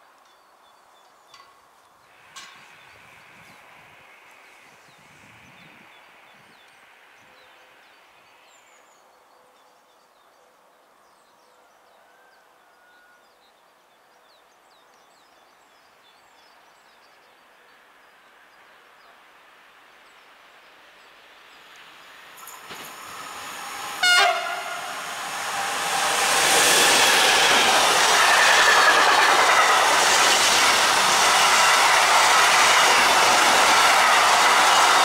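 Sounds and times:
faint outdoor background noise: 0.0 - 35.0
train approaching: 2.1 - 7.1, 19.4 - 35.0.

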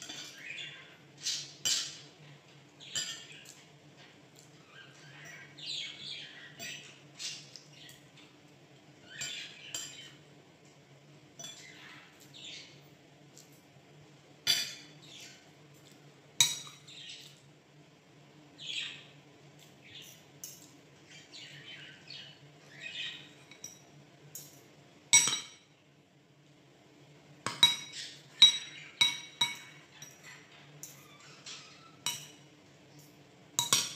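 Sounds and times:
cutlery clinking on plates: 0.0 - 0.5, 2.8 - 4.5, 9.2 - 10.2, 11.4 - 11.8, 14.4 - 15.0, 15.7 - 17.4, 23.3 - 25.7, 27.4 - 33.9.

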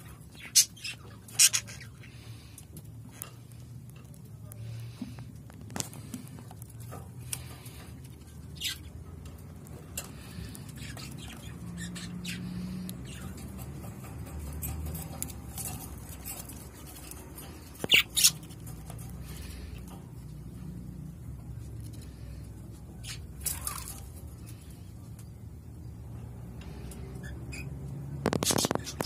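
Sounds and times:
chicks scratching in nest box: 28.2 - 29.0.

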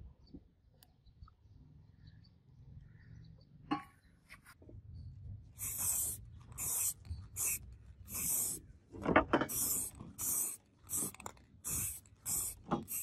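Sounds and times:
aerosol spray can hissing: 5.6 - 8.6, 9.4 - 13.0.

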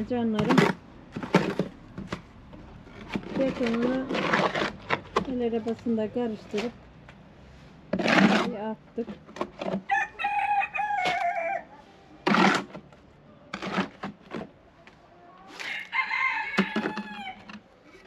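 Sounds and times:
roosters crowing: 9.8 - 11.8, 15.5 - 17.6.

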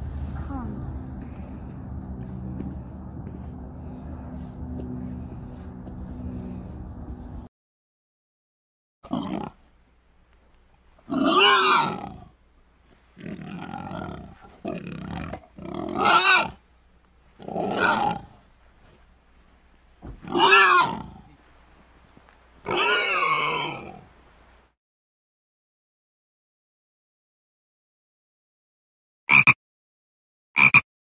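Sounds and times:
warthog calling: 11.1 - 12.3, 13.2 - 16.6, 17.4 - 18.4, 20.2 - 21.4, 22.6 - 24.1.

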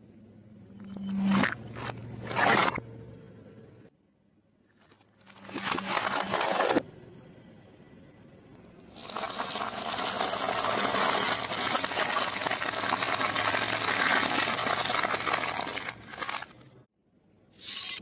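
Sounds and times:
car tyre crushing crackers: 9.0 - 16.8.

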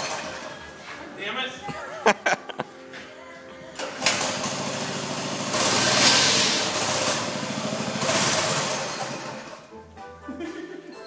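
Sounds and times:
small gas engine revving: 4.0 - 9.3.

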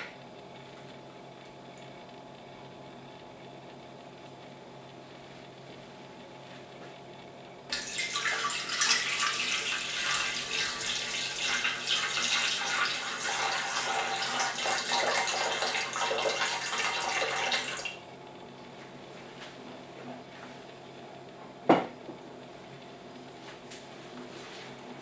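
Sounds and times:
water pouring into metal pan: 7.7 - 17.9.

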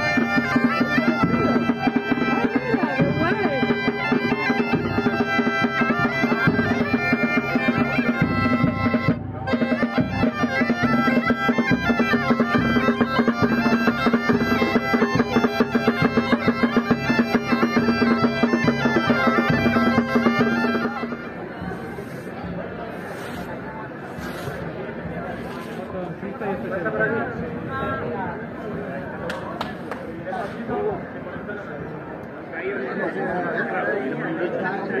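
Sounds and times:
bagpipes playing: 0.0 - 22.1.

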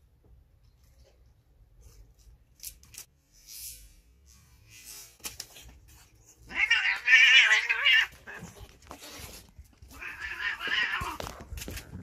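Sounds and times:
cat yowling: 6.5 - 8.5, 9.9 - 11.2.

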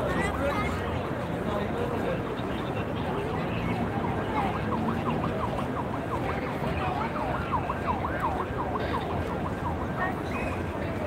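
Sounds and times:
siren in fast yelp: 3.5 - 10.7.

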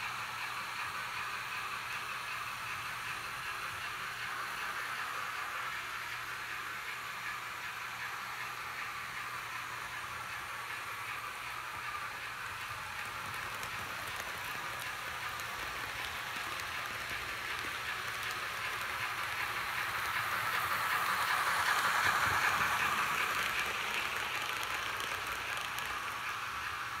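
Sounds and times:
metal wheels rolling on rails: 12.0 - 27.0.

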